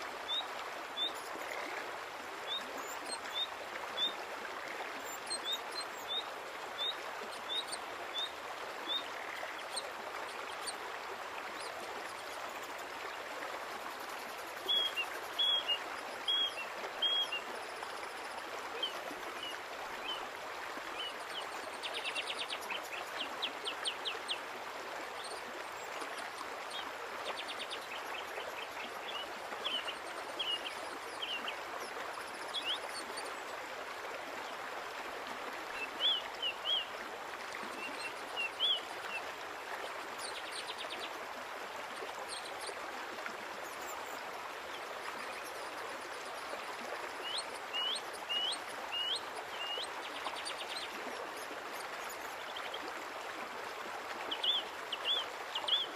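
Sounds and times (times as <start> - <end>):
small songbird chirping: 14.1 - 18.2.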